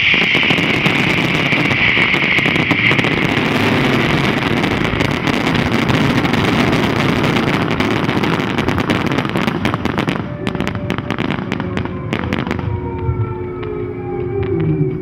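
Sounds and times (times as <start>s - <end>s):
fireworks crackling and popping: 0.0s - 13.0s
sustained tones sliding down: 10.3s - 15.0s.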